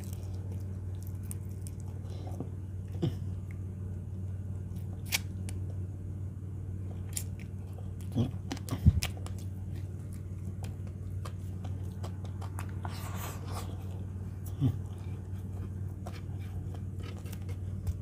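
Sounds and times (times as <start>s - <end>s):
low room hum: 0.0s - 18.0s
person chewing with wet smacks: 6.8s - 18.0s.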